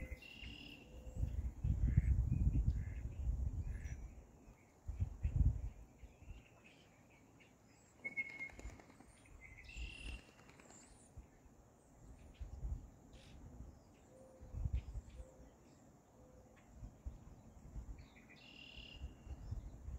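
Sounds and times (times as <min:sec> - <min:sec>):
small birds chirping: 0:00.0 - 0:16.0
low rumbles on microphone: 0:01.2 - 0:03.8
short whistled bird notes: 0:08.0 - 0:10.3.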